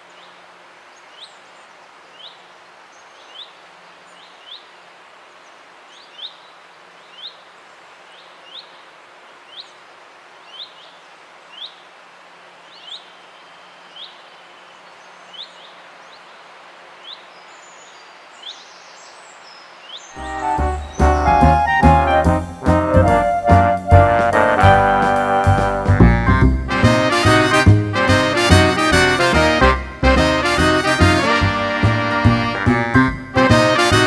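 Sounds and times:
bird chirping: 17.0 - 22.2
swing music: 20.2 - 34.0.

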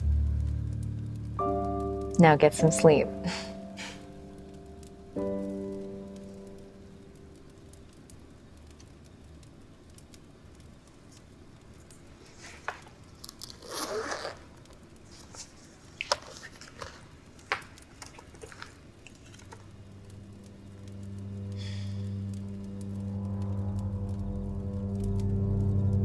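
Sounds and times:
low music drone: 0.0 - 7.9, 19.7 - 26.0
wallet rustle: 13.4 - 14.5.

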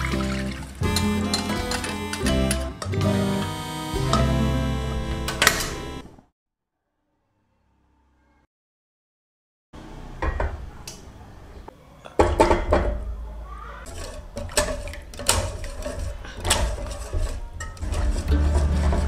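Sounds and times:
whisk scraping a saucepan: 13.8 - 19.0.

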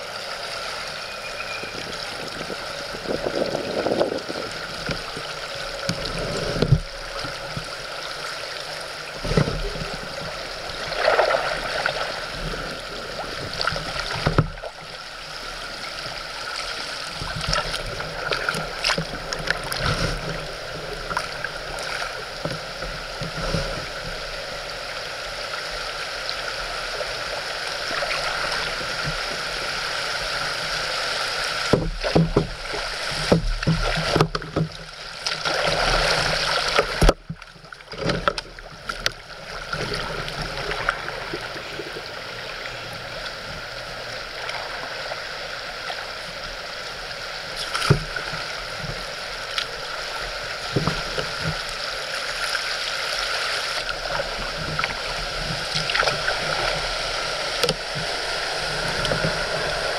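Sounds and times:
river water rushing: 0.0 - 59.9
knocks and bumps on kayak: 14.2 - 14.7, 31.7 - 39.2.

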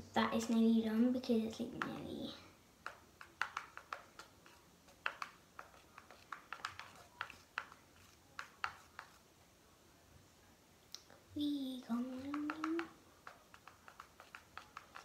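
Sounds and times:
spoon tapping in plastic pot: 2.8 - 4.4, 5.0 - 7.8, 12.0 - 15.0.

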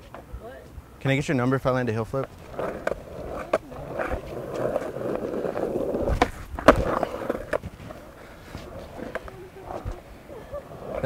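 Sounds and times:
skateboard wheels rolling on concrete: 0.0 - 11.0
skateboard popping and slapping down: 2.2 - 10.1.

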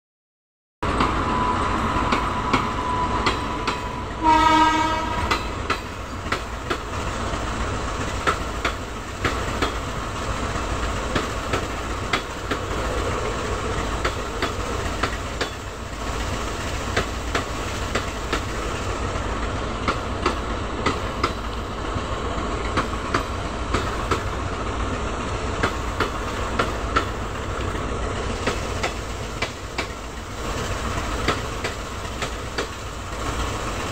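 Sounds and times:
train wheels clicking over rail joints: 2.0 - 4.0, 4.9 - 33.9
locomotive horn blast: 4.1 - 5.5.

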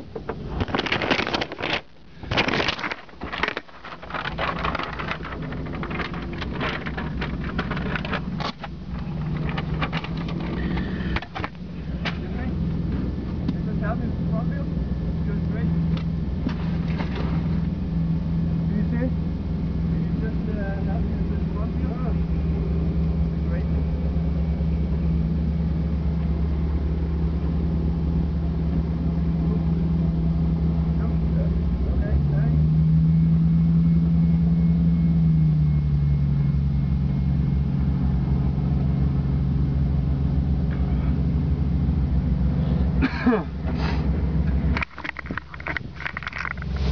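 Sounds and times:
clicks and rattles: 0.0 - 12.3, 44.5 - 46.9
engine droning: 0.0 - 46.9.

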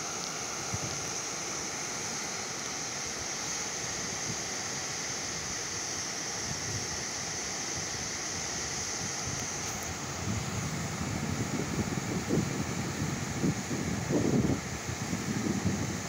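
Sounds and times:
steady rushing noise: 7.7 - 16.0.

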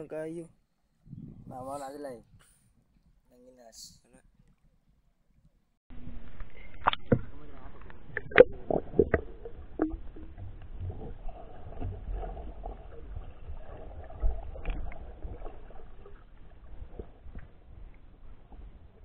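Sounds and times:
muffled underwater water movement: 5.4 - 19.0.

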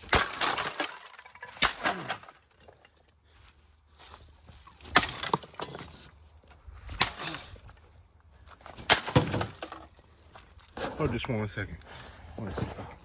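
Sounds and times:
objects smashing and breaking: 0.0 - 2.8, 4.7 - 6.2, 8.6 - 9.9.

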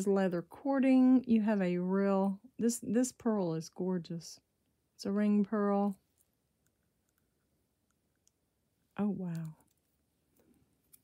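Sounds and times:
faint small clicks: 6.1 - 8.4.

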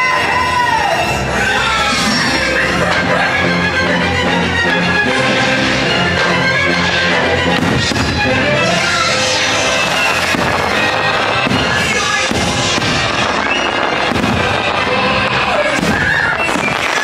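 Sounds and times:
loud show music: 0.0 - 17.0
fireworks bangs: 7.5 - 17.0.

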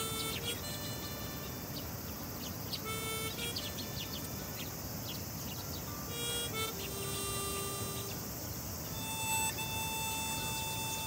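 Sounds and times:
sparrows chirping: 0.0 - 11.0.

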